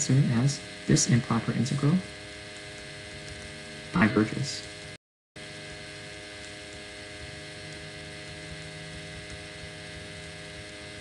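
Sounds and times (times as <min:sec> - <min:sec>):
fixed tones: 0:00.0 - 0:05.0
steady hiss: 0:00.0 - 0:05.0
low electrical hum: 0:00.0 - 0:11.0.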